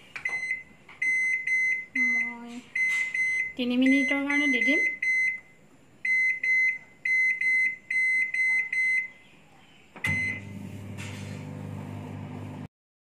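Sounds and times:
microwave keypad beeps: 0.2 - 9.2, 10.0 - 10.6
microwave click: 10.0 - 12.6
microwave oven humming: 10.0 - 12.7.

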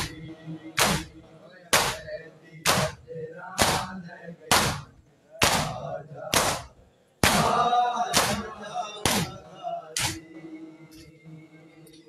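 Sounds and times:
voices calling out: 0.0 - 12.0
hands slapping chests: 0.8 - 1.2, 1.8 - 2.0, 2.7 - 3.0, 3.6 - 3.9, 4.5 - 7.6, 8.2 - 8.4, 10.0 - 10.2.

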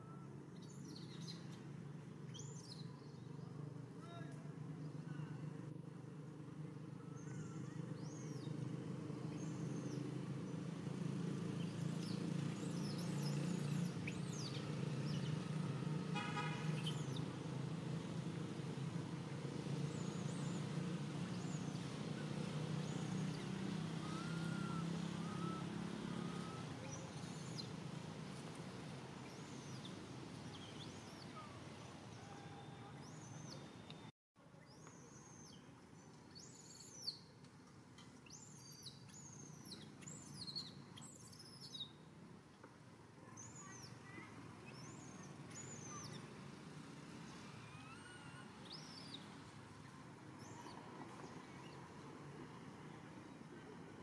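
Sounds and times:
low engine-like drone: 0.0 - 34.1.

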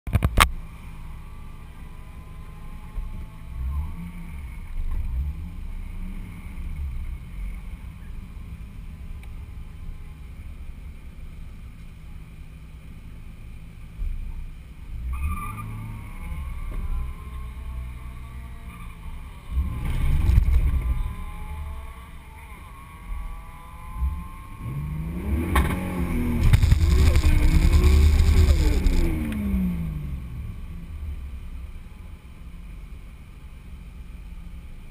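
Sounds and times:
turbocharged car engine revving: 14.9 - 31.6.

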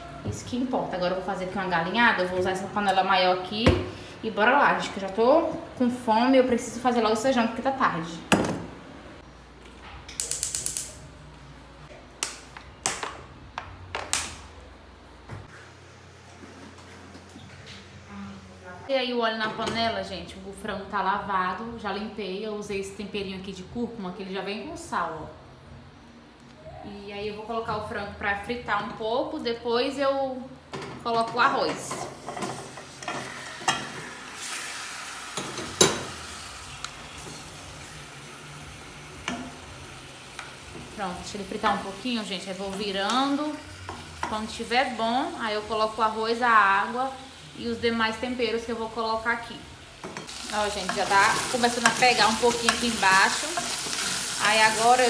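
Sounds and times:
chicken sizzling in hot oil: 32.2 - 42.6, 49.8 - 55.0.

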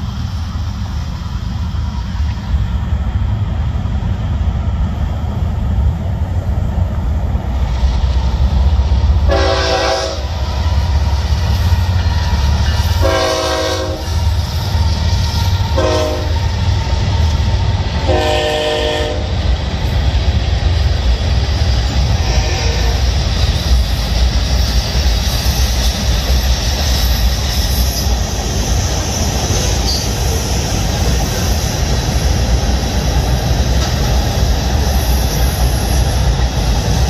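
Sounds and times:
freight train rumbling on trestle: 0.0 - 37.0
locomotive horn: 9.2 - 10.5, 12.9 - 14.2, 15.7 - 16.5, 18.0 - 19.3, 22.2 - 23.0.

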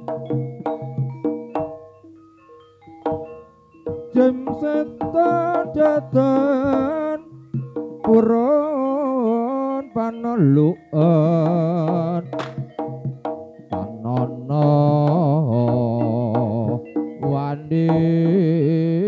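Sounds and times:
gamelan lead melody: 0.0 - 19.0
sharp drum strokes: 11.8 - 18.4.

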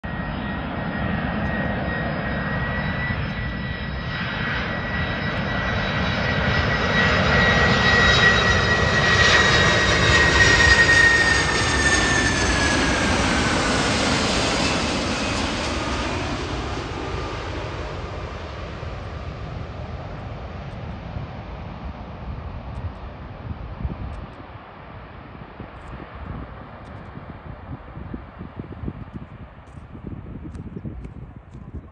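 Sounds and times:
jet airliner passing overhead: 0.0 - 31.9.

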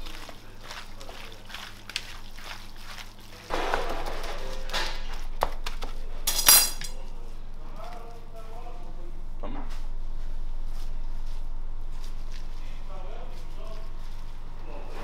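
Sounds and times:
hands squishing raw meat: 0.0 - 6.1, 10.7 - 15.0.

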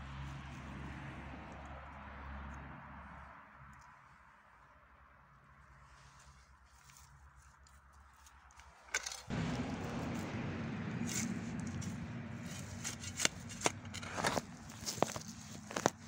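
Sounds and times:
rustling and handling noise: 5.6 - 10.3, 11.0 - 16.0
spade scraping stony soil: 8.5 - 16.0.

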